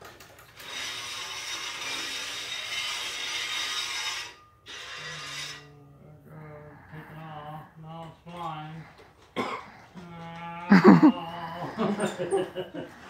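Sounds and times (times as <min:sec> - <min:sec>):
loud rattling rasping noise: 0:00.2 - 0:05.7
low steady hum: 0:05.6 - 0:12.7.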